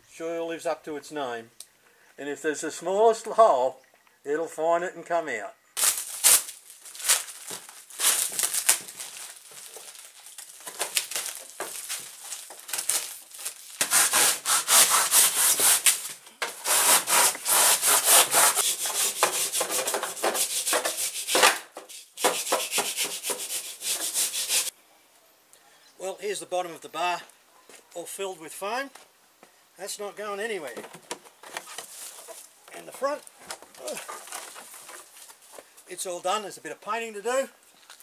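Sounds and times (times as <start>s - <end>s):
plastic sheeting rustling: 5.8s - 17.8s
saw rasping through foam: 13.8s - 24.7s.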